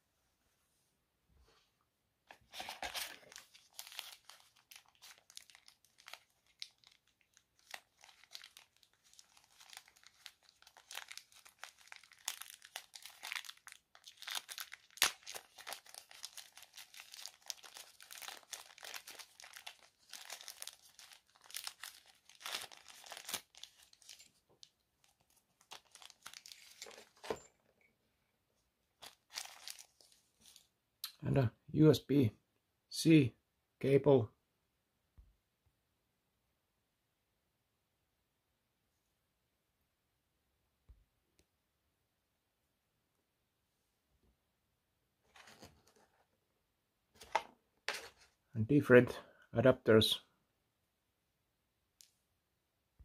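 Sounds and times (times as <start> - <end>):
plastic bag crinkling: 2.5 - 27.5, 29.0 - 30.7.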